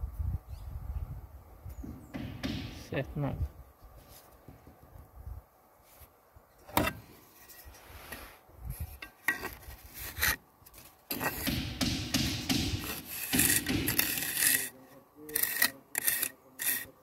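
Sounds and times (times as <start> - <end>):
trowel scraping mortar: 7.3 - 11.5, 12.8 - 17.0
trowel knocking on tile: 11.1 - 14.5.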